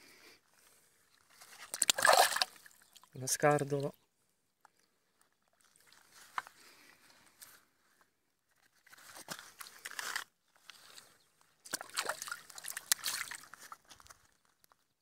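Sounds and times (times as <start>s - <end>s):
water sloshing and splashing: 1.3s - 3.9s, 5.3s - 6.4s, 11.6s - 14.4s.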